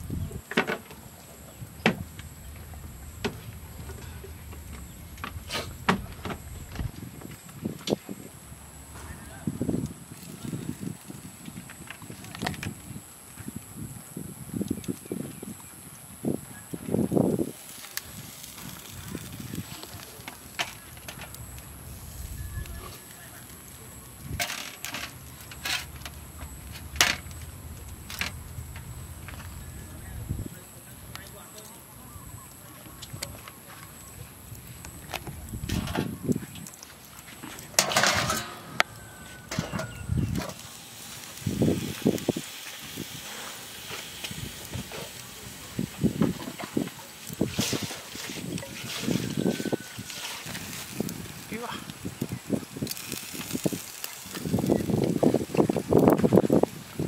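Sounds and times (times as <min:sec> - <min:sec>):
meat hissing and crackling on grill: 0:00.0 - 0:57.0
low background rumble: 0:01.2 - 0:07.7, 0:25.0 - 0:31.1.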